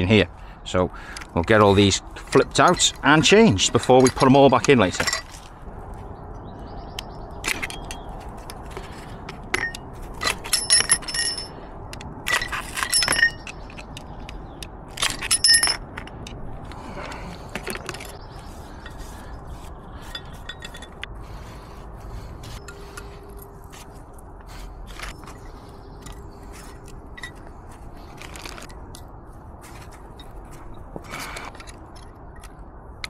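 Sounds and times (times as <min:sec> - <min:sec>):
metal parts clinking: 0:02.2 - 0:05.5, 0:07.4 - 0:19.2, 0:20.0 - 0:21.1, 0:24.9 - 0:29.1.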